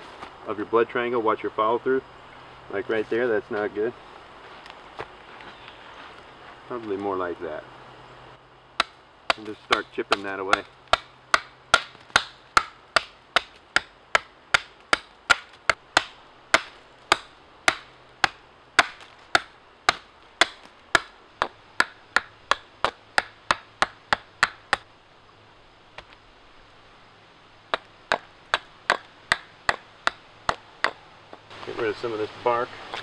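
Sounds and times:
hatchet chopping log: 0:08.8 - 0:24.9, 0:27.7 - 0:31.4.

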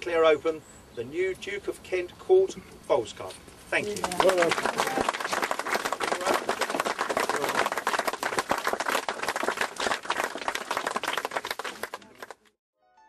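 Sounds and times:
crowd applauding: 0:03.8 - 0:12.5.

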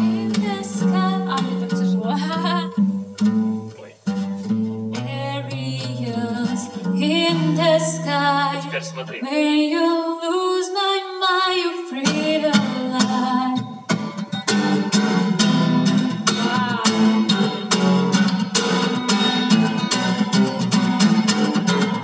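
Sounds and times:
woman singing: 0:00.0 - 0:02.9, 0:05.0 - 0:13.7, 0:14.7 - 0:17.8
strummed acoustic guitar: 0:00.0 - 0:09.5, 0:11.9 - 0:22.0.

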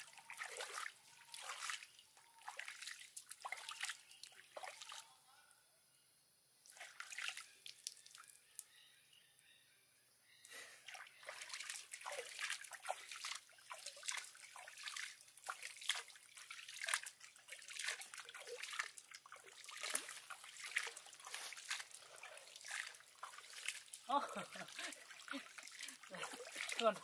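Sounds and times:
water splashing and dripping: 0:00.0 - 0:05.2, 0:06.6 - 0:08.7, 0:10.5 - 0:27.0.

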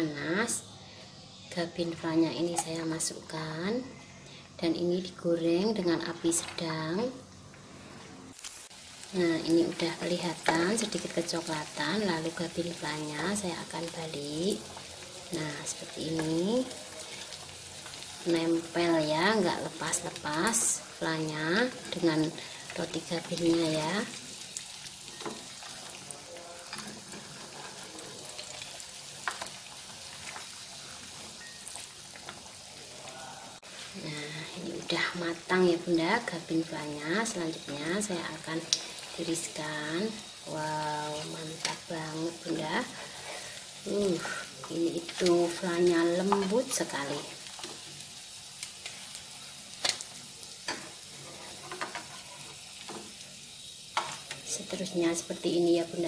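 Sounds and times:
crackers deep-frying in hot oil: 0:00.2 - 0:56.0
metal utensils tapping a pan: 0:50.6 - 0:53.1.

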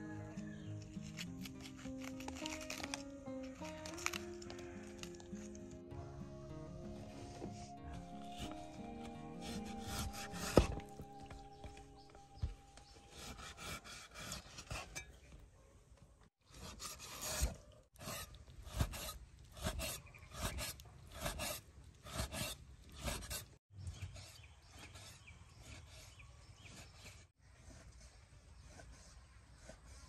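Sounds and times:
cleaver slicing meat: 0:00.9 - 0:05.8, 0:07.9 - 0:15.1, 0:16.6 - 0:23.5
cleaver chopping on wooden board: 0:09.4 - 0:14.9.

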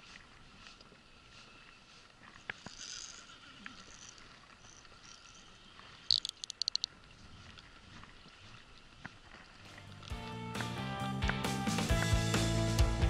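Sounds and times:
fishing reel drag clicking: 0:02.6 - 0:06.9.

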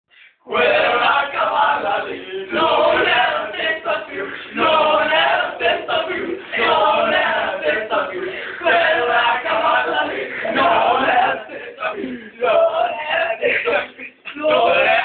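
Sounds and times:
young men chanting in unison: 0:00.5 - 0:15.0.

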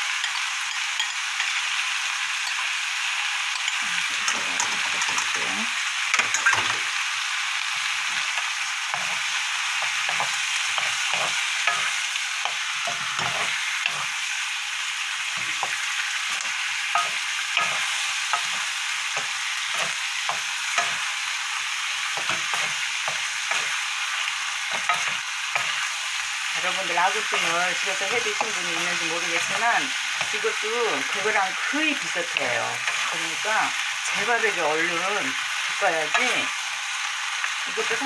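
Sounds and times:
food sizzling in a frying pan: 0:00.0 - 0:38.0.

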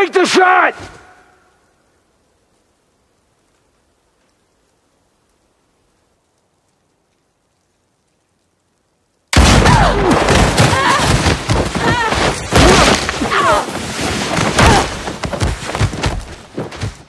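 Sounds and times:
bodies thudding down snow: 0:09.4 - 0:17.0
people grunting and crying out: 0:09.5 - 0:13.8, 0:14.4 - 0:15.2.

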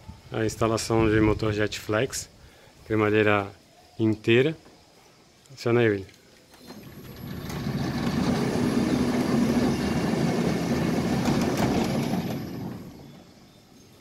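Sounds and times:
gate rolling on track: 0:06.5 - 0:13.6
electric gate motor running: 0:06.5 - 0:13.7.

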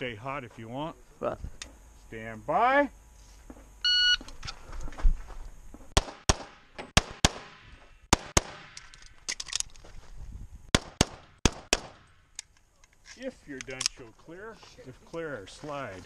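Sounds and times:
shot timer beep: 0:03.8 - 0:04.2
pistol shots: 0:06.0 - 0:08.8, 0:10.7 - 0:12.1.

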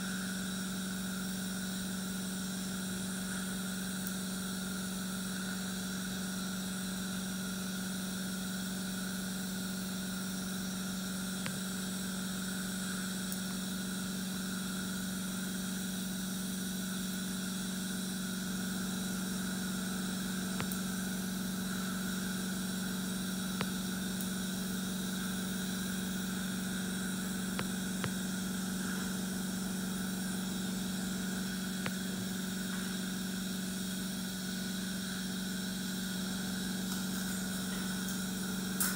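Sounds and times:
equipment humming: 0:08.8 - 0:38.9.

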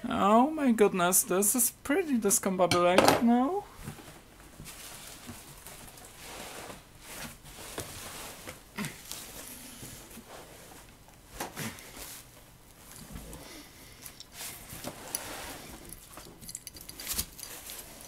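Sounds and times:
bubble wrap and plastic crinkling: 0:03.8 - 0:13.2, 0:14.3 - 0:18.0.

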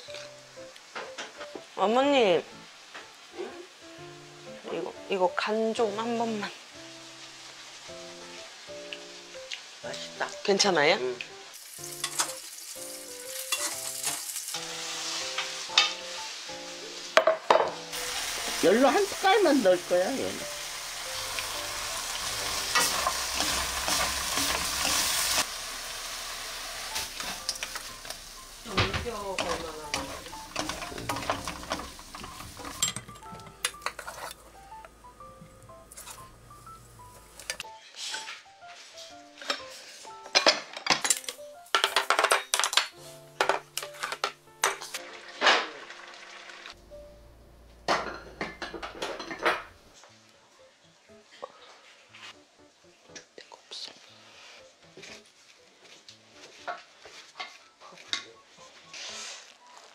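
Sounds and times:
food sizzling in a wok: 0:00.0 - 0:42.2, 0:42.8 - 0:49.2, 0:58.5 - 0:59.9
soft background music: 0:00.0 - 0:59.9
spoons scraping a pan: 0:11.9 - 0:12.5, 0:13.2 - 0:16.0, 0:22.4 - 0:25.5, 0:29.3 - 0:34.4, 0:35.9 - 0:36.3.

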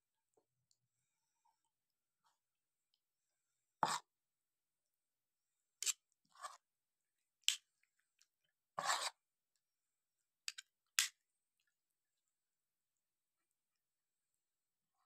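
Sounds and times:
forks scraping ceramic plate: 0:08.8 - 0:09.2.

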